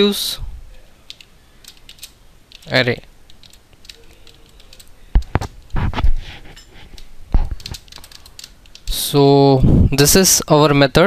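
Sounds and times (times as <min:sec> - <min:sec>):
computer keyboard keystrokes: 0:01.1 - 0:05.8, 0:07.0 - 0:08.9.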